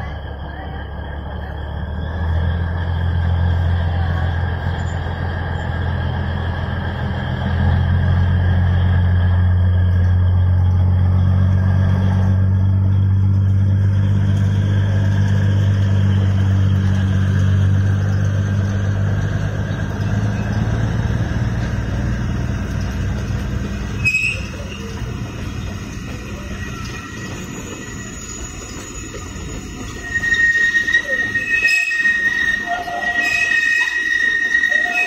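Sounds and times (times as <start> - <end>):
diesel locomotive engine hum: 0.0 - 35.0
train coaches rumbling on rails: 0.0 - 35.0
metallic click and squeak of wheels: 23.9 - 35.0.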